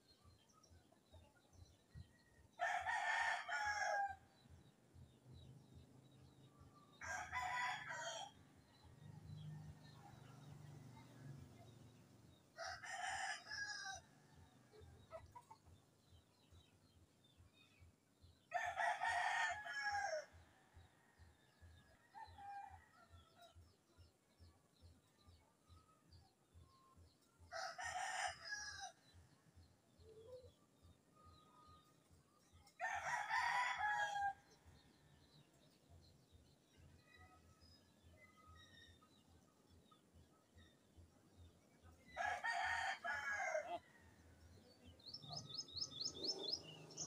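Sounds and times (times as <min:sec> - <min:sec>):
rooster crowing: 0:42.2 - 0:43.8.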